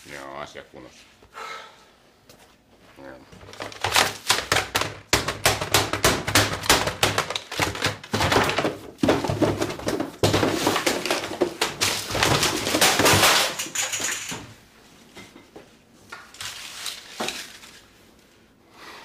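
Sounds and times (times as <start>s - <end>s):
objects thudding and clattering: 3.3s - 15.6s.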